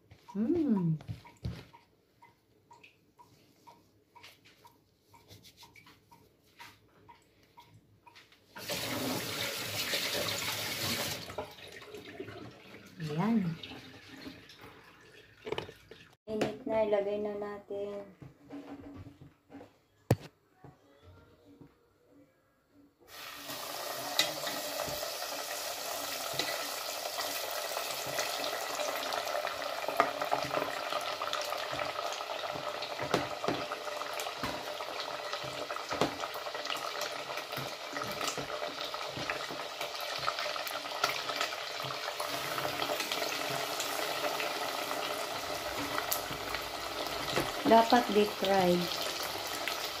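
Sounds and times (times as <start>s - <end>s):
meat deep-frying in oil: 8.6s - 14.8s, 23.1s - 50.0s.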